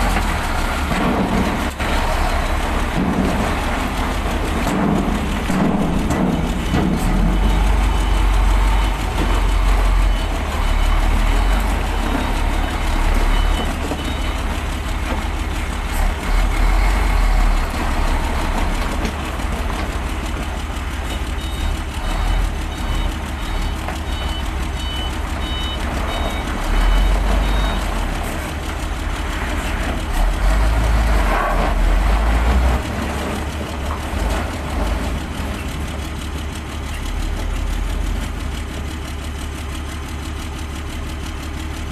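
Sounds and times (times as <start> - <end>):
truck diesel engine rumbling: 0.0 - 41.9
reversing alarm beeping: 5.9 - 14.5, 21.1 - 27.9.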